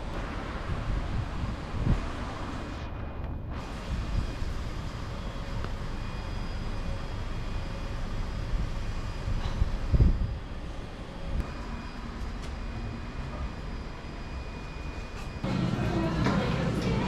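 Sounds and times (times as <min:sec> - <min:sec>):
wind buffeting microphone: 0:00.2 - 0:02.7, 0:08.6 - 0:10.6.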